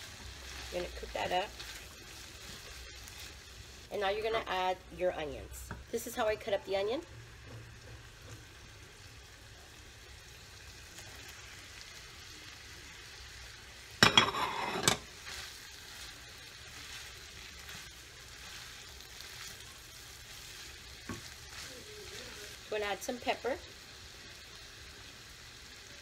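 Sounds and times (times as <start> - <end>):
food sizzling in a pan: 0.0 - 26.0
onions hitting hot grease: 13.9 - 21.5.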